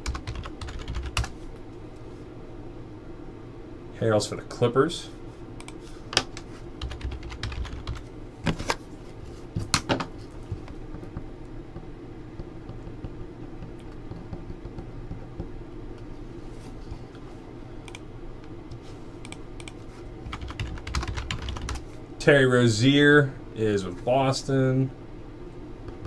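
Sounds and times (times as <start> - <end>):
keyboard typing: 0.0 - 1.3, 6.8 - 8.0, 19.2 - 21.8
steady low hum: 0.0 - 26.0.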